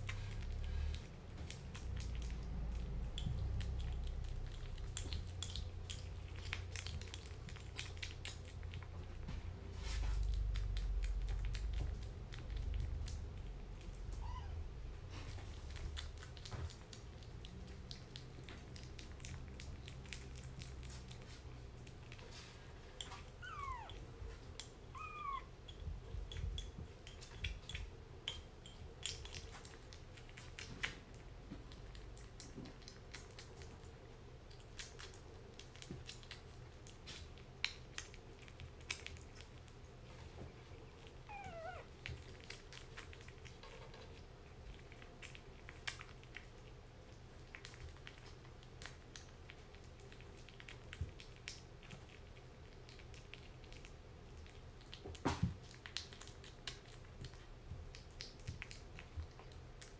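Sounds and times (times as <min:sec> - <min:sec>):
kitten lapping and chewing: 0:00.0 - 0:59.9
kitten mewing: 0:14.1 - 0:14.7, 0:23.3 - 0:24.1, 0:24.9 - 0:25.5, 0:41.2 - 0:42.0.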